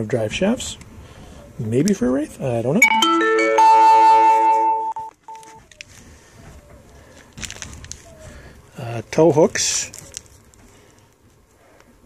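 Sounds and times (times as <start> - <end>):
chime of clear tones: 2.8 - 5.6
plastic bags and cardboard rustling: 5.2 - 11.7.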